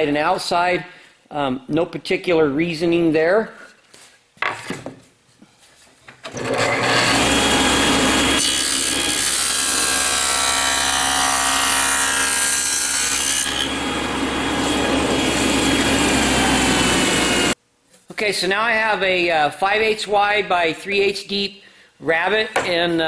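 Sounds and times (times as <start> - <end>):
table saw cutting wood: 6.3 - 17.6
table saw running: 6.3 - 17.6.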